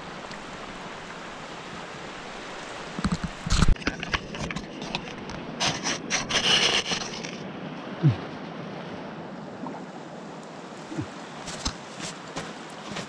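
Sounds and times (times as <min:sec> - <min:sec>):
rustling and scraping handling noise: 0:03.0 - 0:07.4, 0:11.4 - 0:13.0.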